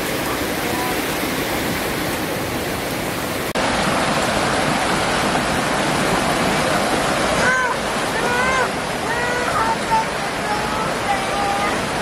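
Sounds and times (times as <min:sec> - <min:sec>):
river rushing: 0:00.0 - 0:12.0.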